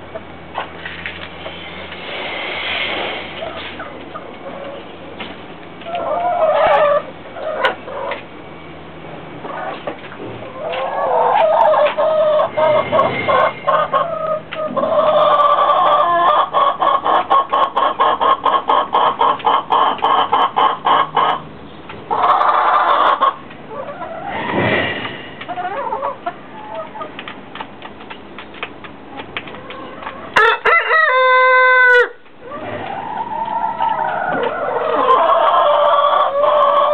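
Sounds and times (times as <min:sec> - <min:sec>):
rooster clucking: 0:05.8 - 0:08.2, 0:09.5 - 0:21.5, 0:22.1 - 0:27.2, 0:29.5 - 0:36.9
rooster crow: 0:30.4 - 0:32.2.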